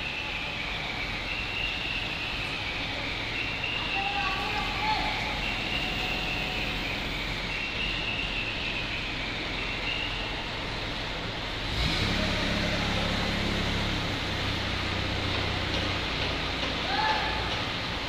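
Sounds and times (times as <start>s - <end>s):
diesel engine running: 0.0s - 18.0s
faint high whine: 2.8s - 8.6s.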